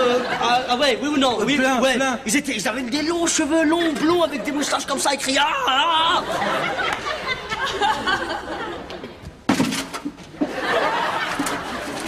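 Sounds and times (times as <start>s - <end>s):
studio audience laughing: 0.0s - 0.8s, 6.1s - 9.1s, 10.4s - 12.0s.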